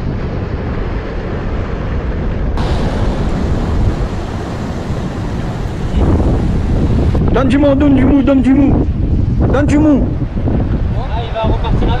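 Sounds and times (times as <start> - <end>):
wind buffeting microphone: 0.0 - 12.0
surf washing against rocks: 2.6 - 7.3.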